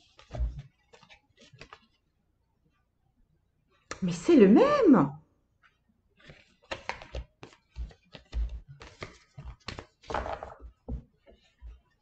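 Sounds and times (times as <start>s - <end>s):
cards rustling: 0.0s - 2.0s, 5.7s - 10.6s
cards clicking and tapping: 6.2s - 11.9s.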